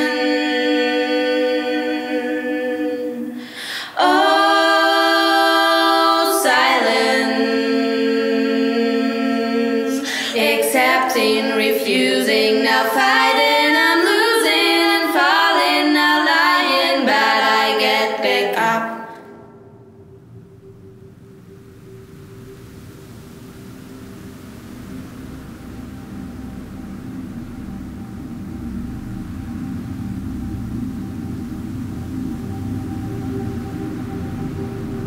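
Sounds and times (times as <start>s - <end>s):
voices singing in harmony: 0.0s - 19.7s.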